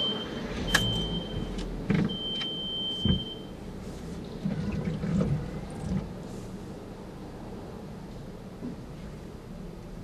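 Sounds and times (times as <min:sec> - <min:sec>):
high electronic beep: 0:00.0 - 0:03.4.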